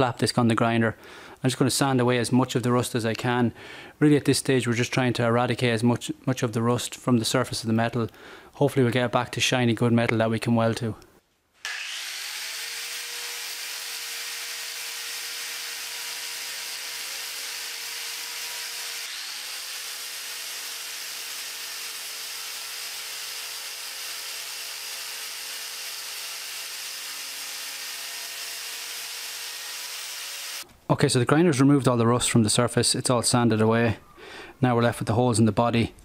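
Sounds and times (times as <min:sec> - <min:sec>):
angle grinder sanding metal: 0:11.6 - 0:30.6.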